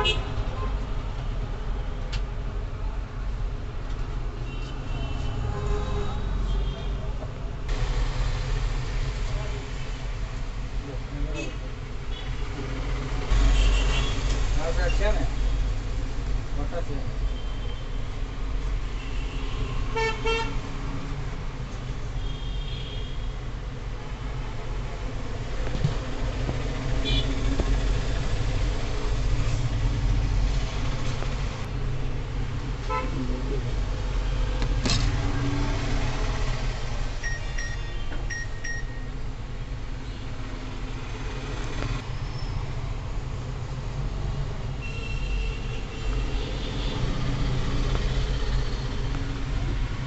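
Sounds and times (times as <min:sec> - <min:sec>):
short high-pitched beep: 0:37.2 - 0:39.1.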